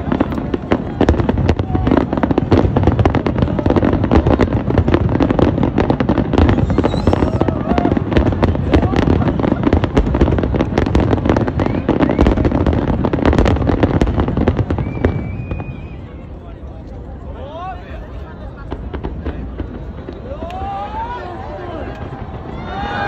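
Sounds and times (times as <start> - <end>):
firework shells bursting: 5.8 - 7.8.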